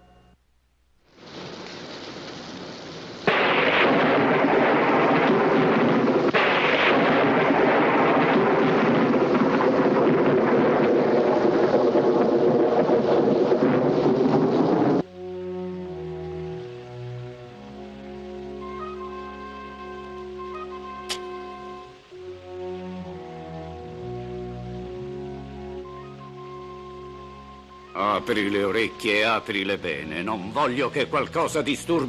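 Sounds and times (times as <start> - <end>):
music: 0.0 - 0.5, 15.0 - 32.0
heavy rain: 0.7 - 32.0
loud thunderclap: 3.2 - 15.1
rolling thunder: 3.2 - 15.1.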